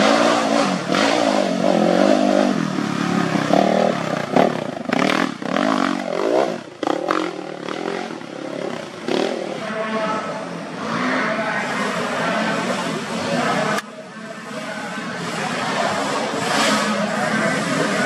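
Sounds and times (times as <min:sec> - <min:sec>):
dirt bike engine revving: 0:00.0 - 0:13.8, 0:14.4 - 0:18.0.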